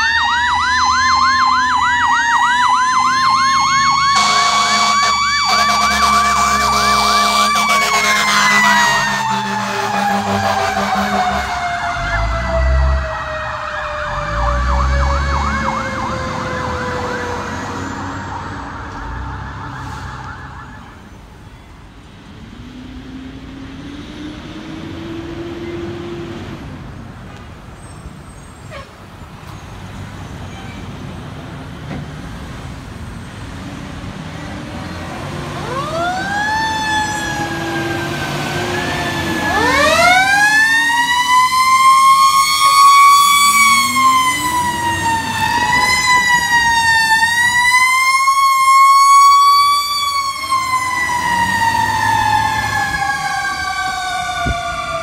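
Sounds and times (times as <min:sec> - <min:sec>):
fire engine siren wailing: 0:00.0 - 0:22.1, 0:33.2 - 0:55.0
truck engines rumbling: 0:00.0 - 0:55.0.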